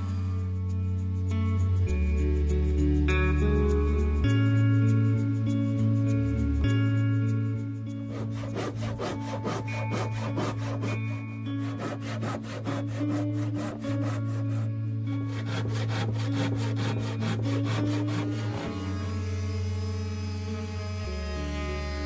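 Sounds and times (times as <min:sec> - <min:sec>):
background music with drone: 0:00.0 - 0:22.0
hand saw cutting wood: 0:08.0 - 0:22.0.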